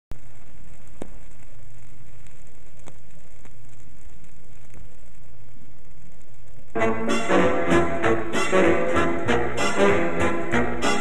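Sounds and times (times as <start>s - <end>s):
vinyl record hiss and hum: 0.1s - 11.0s
vinyl clicks and pops: 0.3s - 6.8s.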